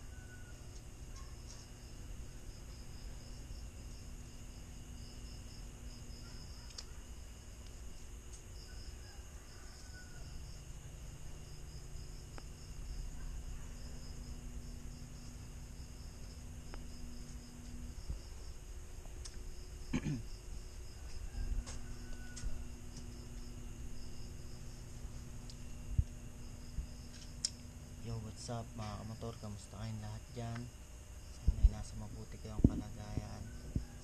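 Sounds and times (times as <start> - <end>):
crickets chirping: 0.0 - 34.0
low steady hum: 0.0 - 34.0.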